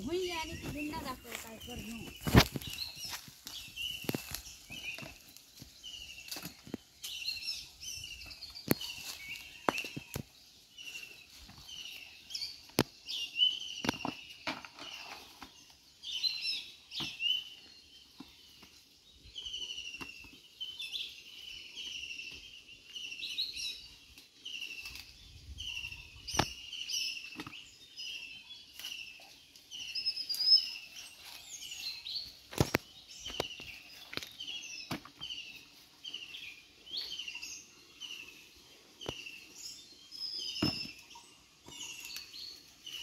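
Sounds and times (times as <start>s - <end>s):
rustling in leaf litter: 0.0s - 7.3s
birds chirping: 0.0s - 43.0s.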